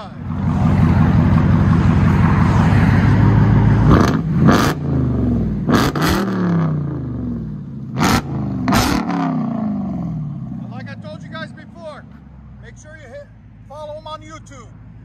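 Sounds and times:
car engine revving: 0.0 - 12.2.

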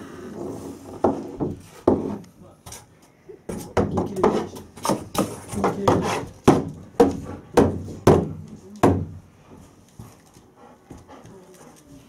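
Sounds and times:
brush knocking on wooden door: 0.9 - 2.2, 3.5 - 9.2.

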